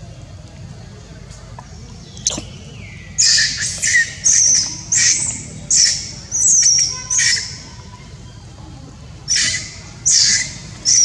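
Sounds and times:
baby monkey screaming: 0:09.3 - 0:11.0.

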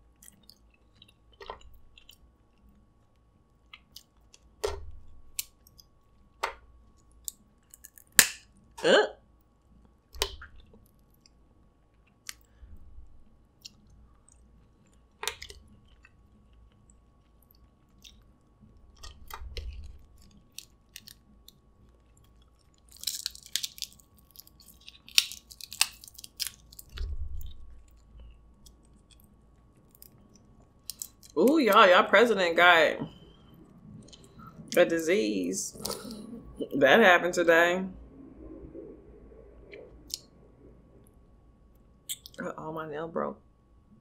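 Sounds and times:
soft chewing: 0:00.0 - 0:04.6, 0:09.4 - 0:31.4, 0:33.1 - 0:34.8, 0:35.7 - 0:36.7
crab shells cracking: 0:00.1 - 0:08.7, 0:13.5 - 0:31.8, 0:40.0 - 0:40.3.

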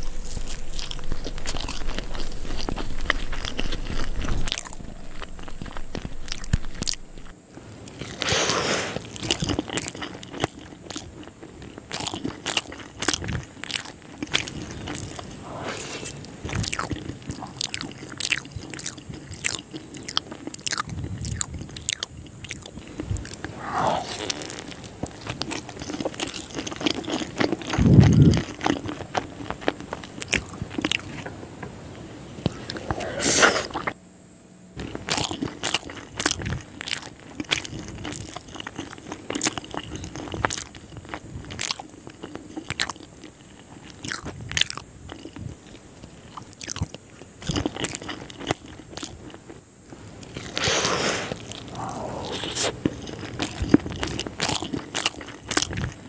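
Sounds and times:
crunching and chewing fried chicken: 0:00.0 - 0:31.3, 0:32.3 - 0:34.0, 0:34.8 - 0:56.0.

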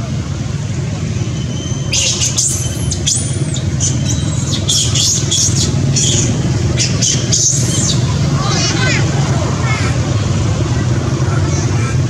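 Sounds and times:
baby monkey squealing: 0:01.6 - 0:09.1.

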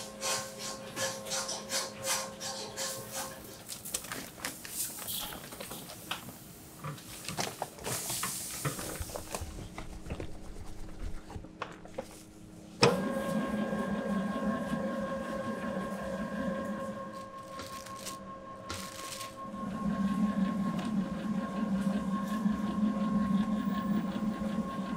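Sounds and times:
paper rustling: 0:07.1 - 0:12.3, 0:17.3 - 0:19.4
mixer motor thump: 0:12.8 - 0:13.1
mixer motor humming: 0:12.8 - 0:24.9.

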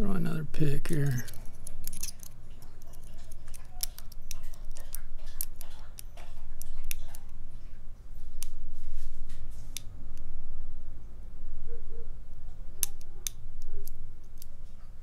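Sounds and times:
lock pick clicking and scraping: 0:00.9 - 0:06.2.

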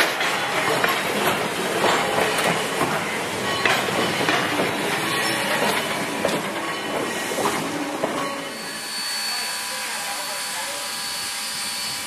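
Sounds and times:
wheels clacking over rail joints: 0:00.0 - 0:08.5
train wheels rumbling on rails: 0:00.0 - 0:12.0.

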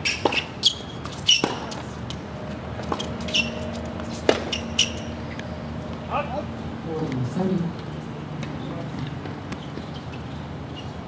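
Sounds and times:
tennis ball bouncing on court: 0:00.0 - 0:02.2, 0:02.8 - 0:05.1
tennis ball struck by racket: 0:00.1 - 0:01.9, 0:02.8 - 0:05.0.

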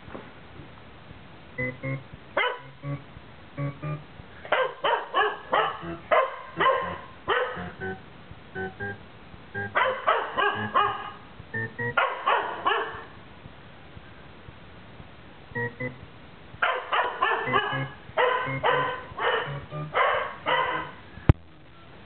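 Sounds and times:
electronic beeping tones: 0:01.6 - 0:04.1, 0:05.8 - 0:07.0, 0:07.6 - 0:08.0, 0:08.6 - 0:09.8, 0:11.5 - 0:12.0, 0:15.5 - 0:16.1, 0:17.5 - 0:20.0
dog barking excitedly: 0:02.4 - 0:02.7, 0:04.4 - 0:07.8, 0:09.7 - 0:11.3, 0:11.9 - 0:13.2, 0:16.6 - 0:21.0.

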